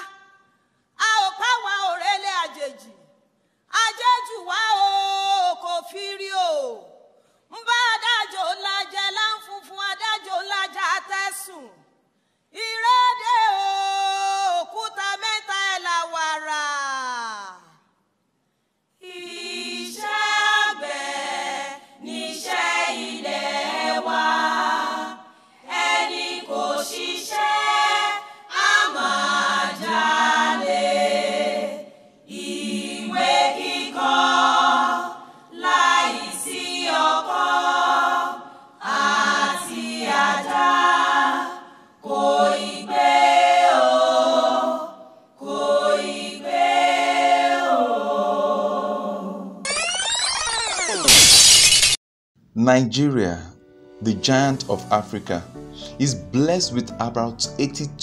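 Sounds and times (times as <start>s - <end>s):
women singing together: 1.0s - 2.9s, 3.7s - 6.9s, 7.6s - 11.7s, 12.6s - 16.8s, 19.0s - 49.6s.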